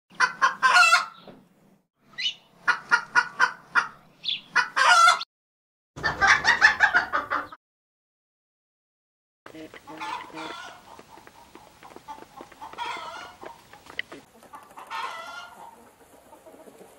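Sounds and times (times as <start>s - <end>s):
hen clucking: 0.1s - 1.3s, 2.2s - 5.3s, 6.0s - 7.6s, 9.5s - 16.9s.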